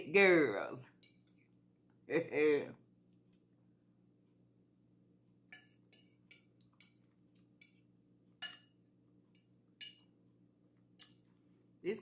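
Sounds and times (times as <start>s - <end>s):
faint steady hum: 0.0s - 12.0s
fork clinking against plate: 5.5s - 8.8s, 9.4s - 10.1s.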